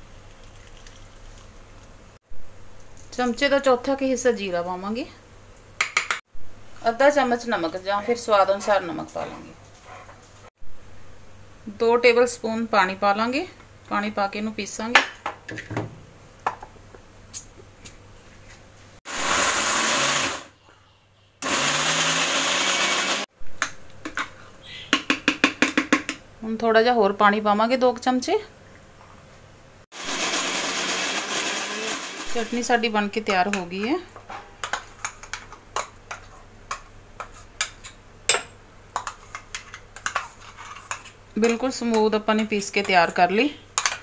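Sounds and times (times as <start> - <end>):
mixer grinder motor grinding: 19.1 - 20.5, 21.4 - 23.2, 30.0 - 32.6.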